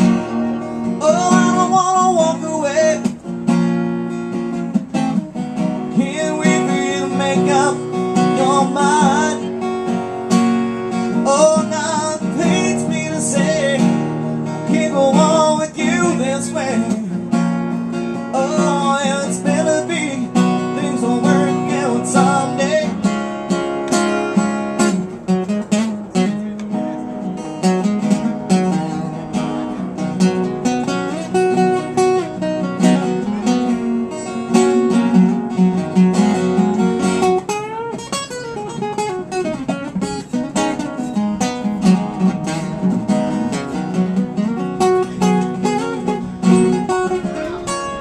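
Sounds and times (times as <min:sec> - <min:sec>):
acoustic guitar playing: 0:00.0 - 0:48.0.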